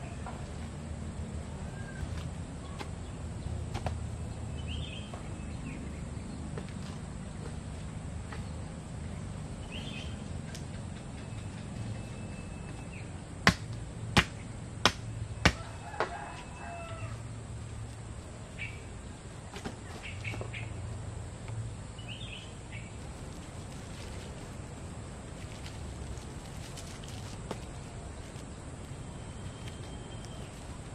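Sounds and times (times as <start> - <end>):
birds chirping: 0.0 - 30.9
bamboo poles knocking: 13.5 - 16.2.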